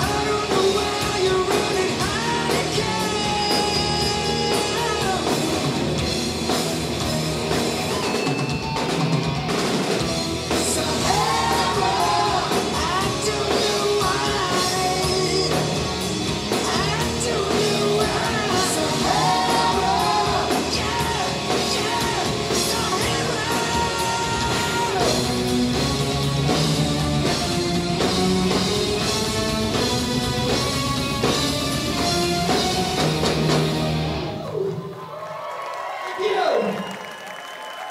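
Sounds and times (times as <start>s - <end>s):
man singing lead vocal: 0.0s - 5.6s, 10.6s - 25.2s
live hard rock band playing: 0.0s - 34.8s.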